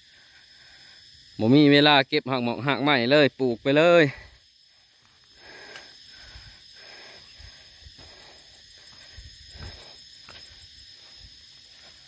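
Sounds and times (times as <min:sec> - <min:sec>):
steady hiss: 0:00.0 - 0:12.0
footsteps on wet soil: 0:07.9 - 0:12.0.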